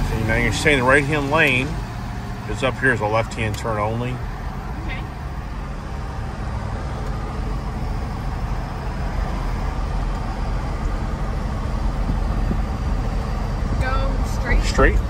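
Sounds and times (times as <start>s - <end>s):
engine and road noise rumble: 0.0s - 15.0s.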